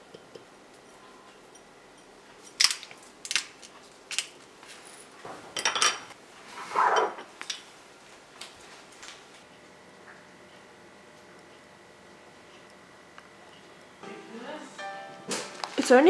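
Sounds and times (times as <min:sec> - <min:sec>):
tableware clinking: 0:05.6 - 0:06.2.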